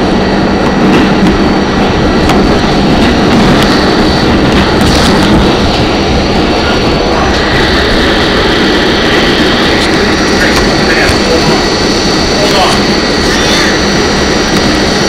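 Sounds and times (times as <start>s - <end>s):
high whine: 0.0s - 15.0s
subway wheels rumbling on rails: 0.0s - 15.0s.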